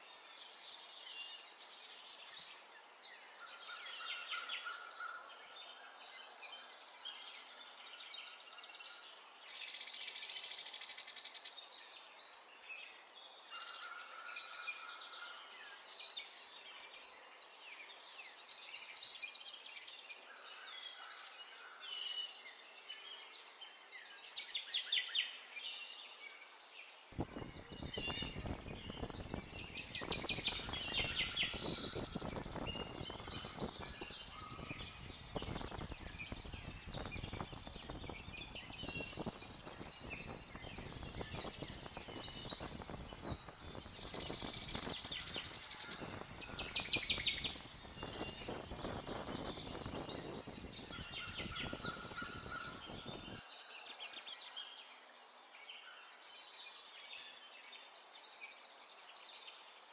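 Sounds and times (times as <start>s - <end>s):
birds chirping: 27.1s - 54.8s.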